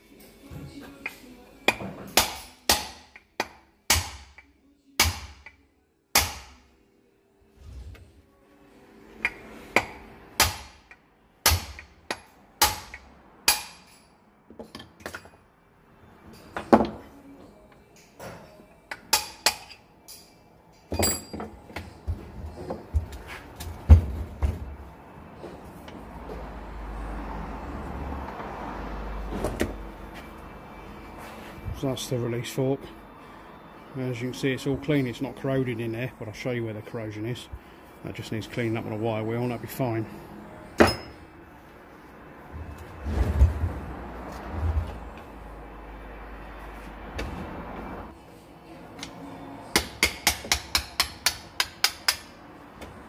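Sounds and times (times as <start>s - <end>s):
hammer striking metal: 1.7s - 4.4s, 5.0s - 6.6s, 9.2s - 14.1s, 18.9s - 20.3s, 40.8s - 41.2s, 49.7s - 52.4s.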